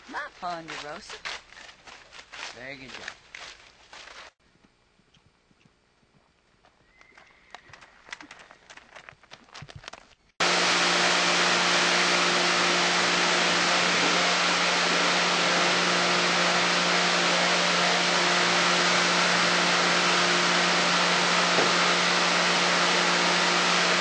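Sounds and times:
horse hoofbeats on dirt: 0:00.0 - 0:04.4, 0:05.0 - 0:10.3
steady low hum: 0:10.4 - 0:24.0.

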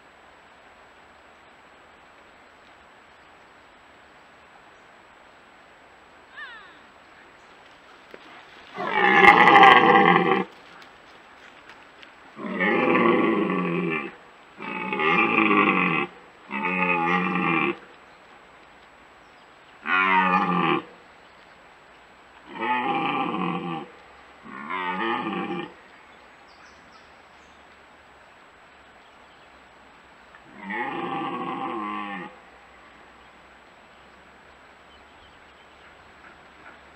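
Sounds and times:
deer stag roaring: 0:08.7 - 0:10.6, 0:12.4 - 0:17.8, 0:19.8 - 0:20.9, 0:22.4 - 0:25.8, 0:30.5 - 0:32.4.

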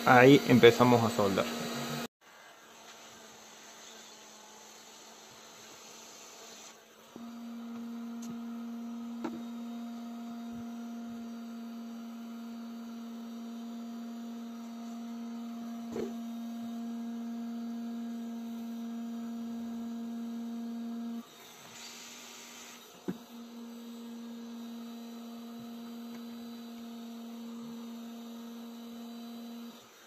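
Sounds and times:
electrical hum: 0:00.0 - 0:02.1.

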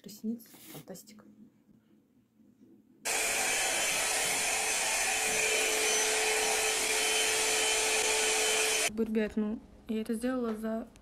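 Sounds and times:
hair dryer blowing air: 0:03.1 - 0:08.9.

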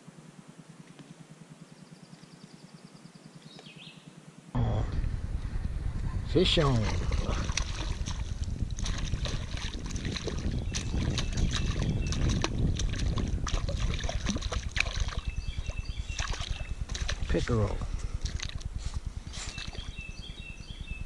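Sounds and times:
low rumble: 0:04.6 - 0:21.0
fish splashing at the surface: 0:06.8 - 0:15.3.

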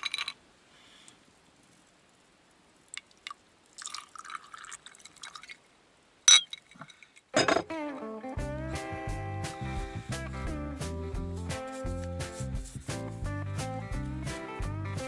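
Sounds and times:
glass clinking: 0:00.0 - 0:00.4, 0:06.3 - 0:07.7
liquor pouring into glass: 0:03.0 - 0:05.6.

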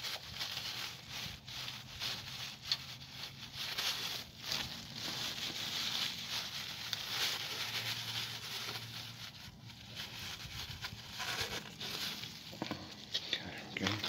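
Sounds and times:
paper towel rubbing and rustling: 0:00.0 - 0:13.1.

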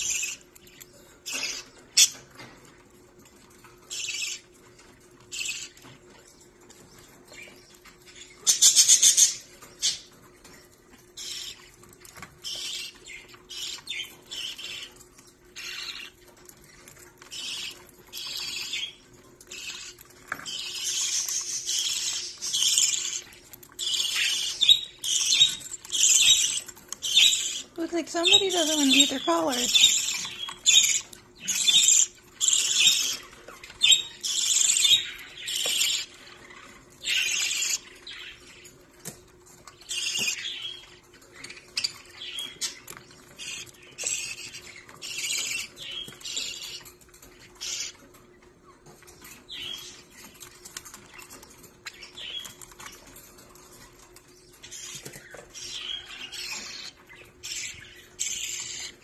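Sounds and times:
budgerigars chattering: 0:17.3 - 0:38.5, 0:54.6 - 0:59.0.

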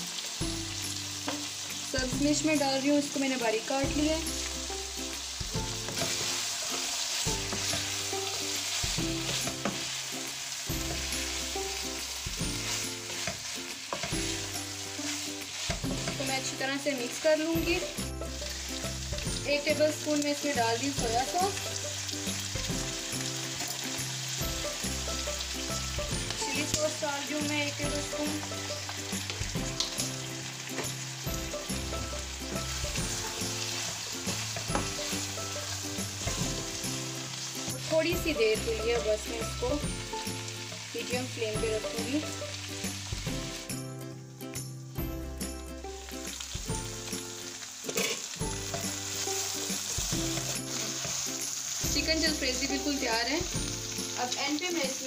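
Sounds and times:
food sizzling in a frying pan: 0:00.0 - 0:55.0
soft background music: 0:00.0 - 0:55.0
spatula scraping pan: 0:05.8 - 0:10.0, 0:12.4 - 0:16.5, 0:47.9 - 0:51.3.

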